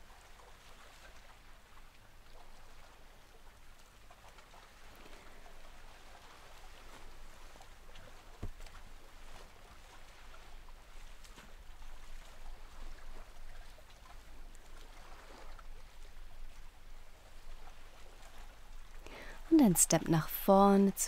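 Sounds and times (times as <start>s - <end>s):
slow deep breathing: 19.0s - 19.5s.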